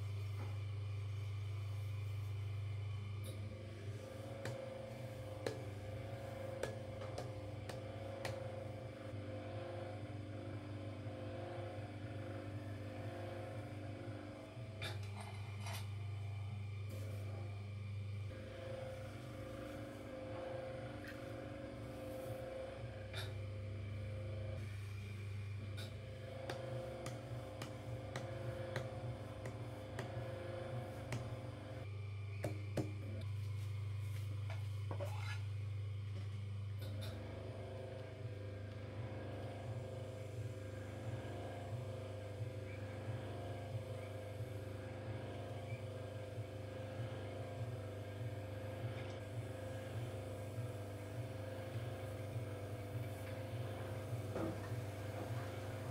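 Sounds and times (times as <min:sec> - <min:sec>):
potter's wheel motor humming: 0:00.0 - 0:55.9
tool shaving clay: 0:03.5 - 0:08.9, 0:24.6 - 0:31.9.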